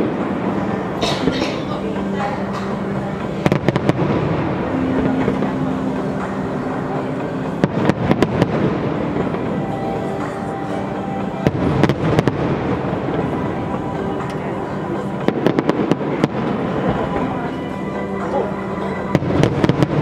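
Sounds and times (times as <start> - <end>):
distant fireworks rumble: 0.0 - 17.6, 18.2 - 20.0
steady musical tones: 0.0 - 20.0
fireworks bangs and crackles: 3.2 - 5.6, 7.6 - 9.6, 11.4 - 14.5, 15.2 - 17.5, 19.1 - 20.0.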